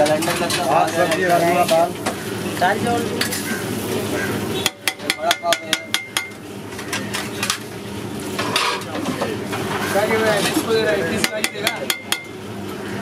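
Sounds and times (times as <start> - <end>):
frying sizzle: 0.0 - 13.0
potato masher clinking on griddle: 4.6 - 7.6, 10.4 - 12.4.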